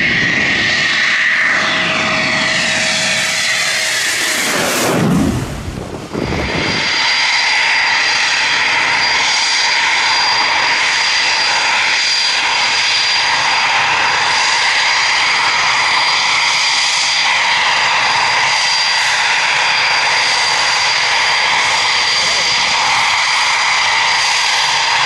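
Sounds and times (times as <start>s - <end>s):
jet engines running: 0.0s - 25.0s.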